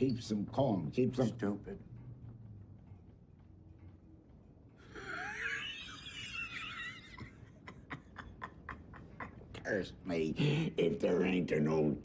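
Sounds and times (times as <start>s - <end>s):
man laughing: 5.0s - 9.6s.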